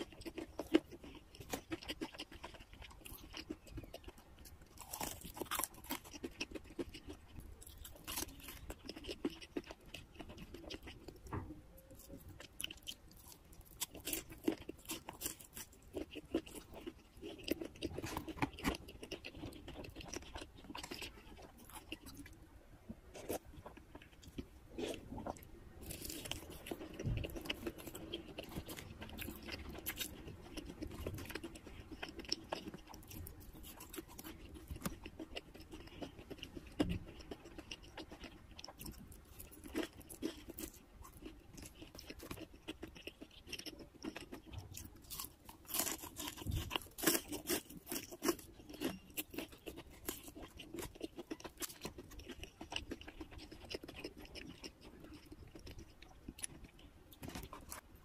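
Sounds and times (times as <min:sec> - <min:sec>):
chewing and crunching fried food: 0:00.0 - 0:58.0.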